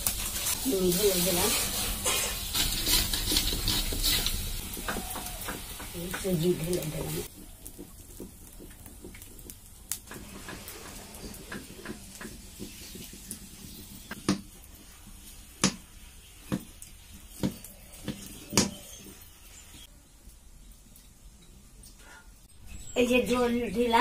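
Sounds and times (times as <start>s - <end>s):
spatula scraping a steel pot: 0.0s - 5.8s
spatula mashing dough: 0.0s - 15.8s.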